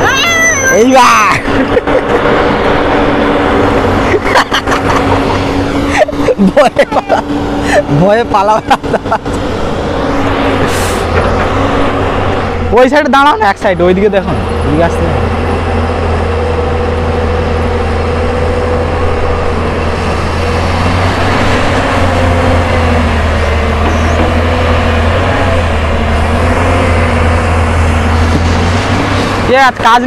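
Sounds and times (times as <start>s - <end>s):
excavator diesel engine droning: 0.0s - 30.0s.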